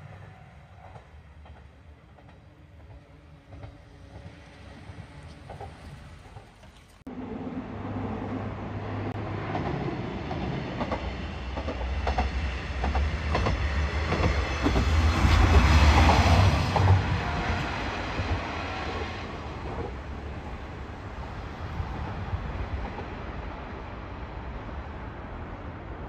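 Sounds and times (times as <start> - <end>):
diesel railcar engine hum: 0.0 - 26.0
train wheels clacking on rail joints: 0.8 - 6.7, 9.4 - 17.4.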